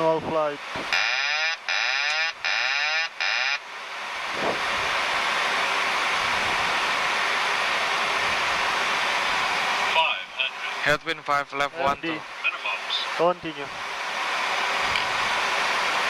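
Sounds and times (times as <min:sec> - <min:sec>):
air rush and engine noise: 0:00.0 - 0:16.0.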